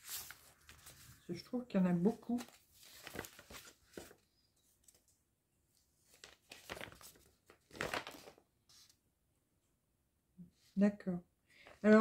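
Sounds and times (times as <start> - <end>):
paper rustling: 0.0 - 1.3, 2.0 - 5.2, 6.0 - 9.0.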